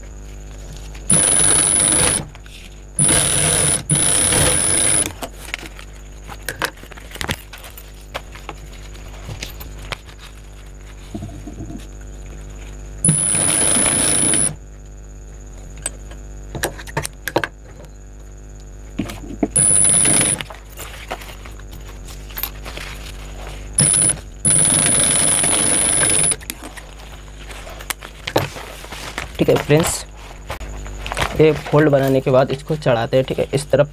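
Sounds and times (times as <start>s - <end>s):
sewing machine whining: 1.1s - 2.4s, 3.0s - 5.2s, 13.0s - 14.6s, 19.6s - 20.4s, 23.8s - 26.4s.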